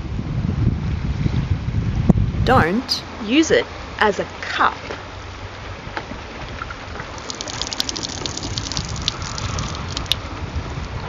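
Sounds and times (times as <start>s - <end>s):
wind rumbling on microphone: 0.0s - 2.4s, 5.4s - 11.0s
water pouring and splashing: 6.6s - 10.2s.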